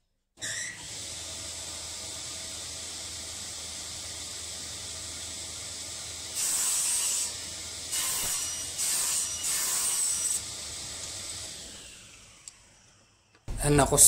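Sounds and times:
saw cutting wood: 0:00.4 - 0:13.5
table saw blade hissing: 0:06.3 - 0:12.8.

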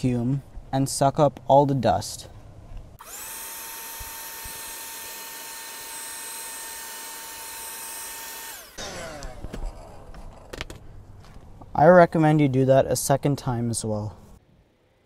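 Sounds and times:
handheld vacuum whining: 0:03.0 - 0:10.8.

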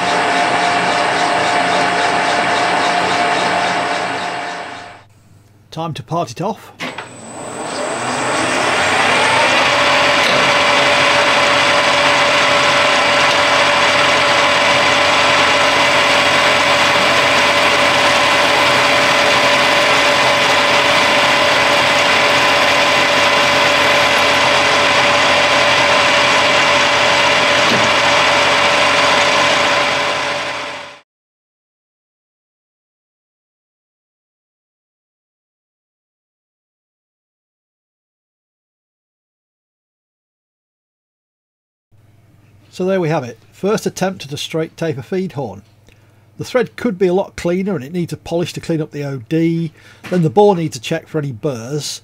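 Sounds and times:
lathe running with whine: 0:00.0 - 0:05.1, 0:06.8 - 0:31.0
parting tool cutting metal: 0:12.6 - 0:30.8.

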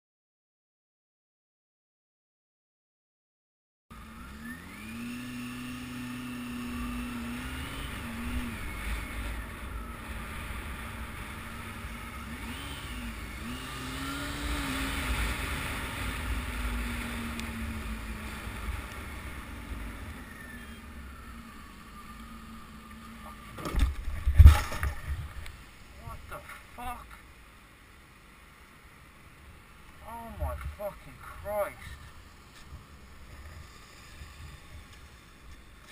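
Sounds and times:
motorcycle engine revving: 0:03.9 - 0:26.9
wind and road rumble: 0:03.9 - 0:35.9
car crashing into motorcycle: 0:23.6 - 0:25.2.

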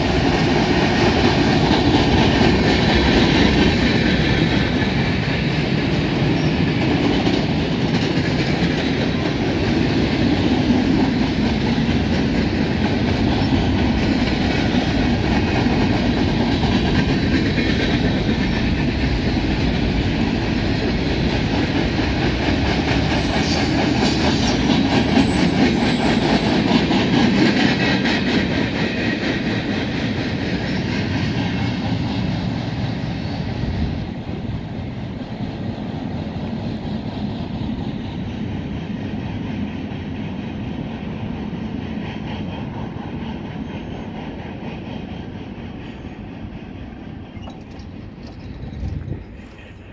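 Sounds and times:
clickety-clack over rail joints: 0:00.0 - 0:49.9
train wheels rumbling on rail: 0:00.0 - 0:49.9
high wheel squeals: 0:23.1 - 0:26.7.

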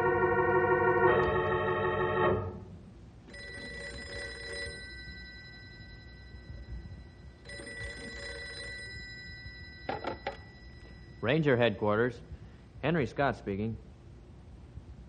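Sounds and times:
organ music: 0:00.0 - 0:02.8
telephone bell ringing: 0:00.1 - 0:02.4, 0:03.3 - 0:11.3.

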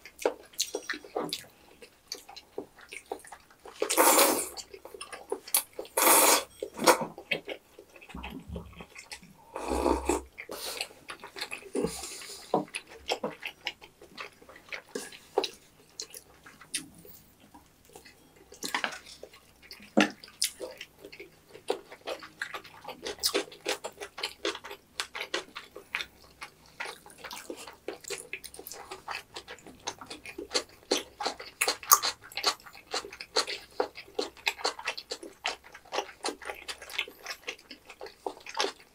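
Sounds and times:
wet chewing: 0:00.0 - 0:38.9
slurping soup: 0:03.8 - 0:04.6, 0:05.9 - 0:07.1, 0:09.4 - 0:11.0.

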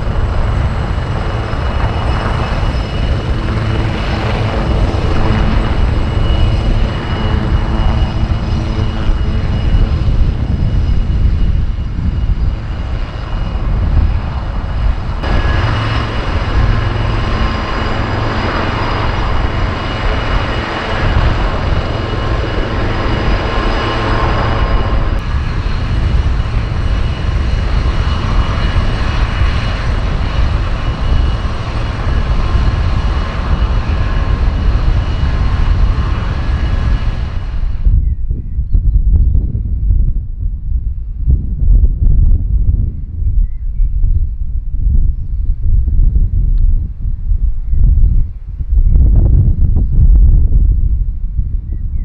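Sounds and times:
helicopter engines whining: 0:00.0 - 0:39.7
low rotor rumble: 0:00.0 - 0:52.0.

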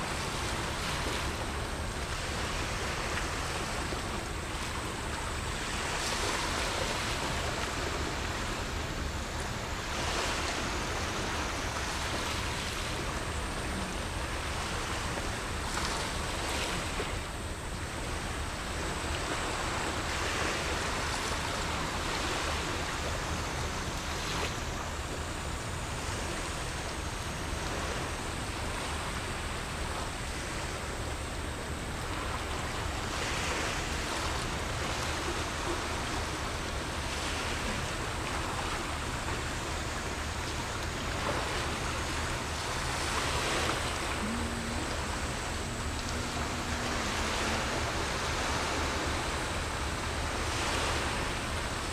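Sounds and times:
small waves washing ashore: 0:00.0 - 0:51.9
steady low rumble: 0:33.8 - 0:51.9.

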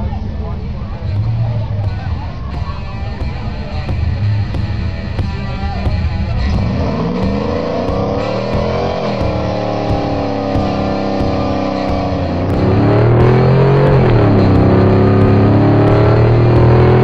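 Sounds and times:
engine accelerating hard: 0:00.0 - 0:17.0.

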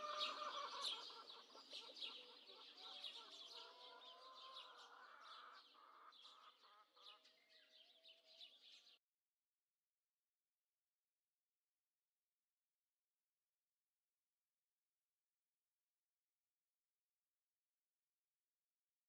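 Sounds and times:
chickens clucking and chirping: 0:00.0 - 0:07.3.

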